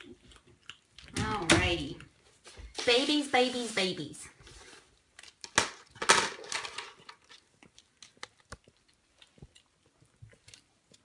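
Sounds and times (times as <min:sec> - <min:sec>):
kittens chewing and lapping: 0:00.0 - 0:01.4, 0:07.0 - 0:11.0
rustling scrape: 0:02.4 - 0:04.9.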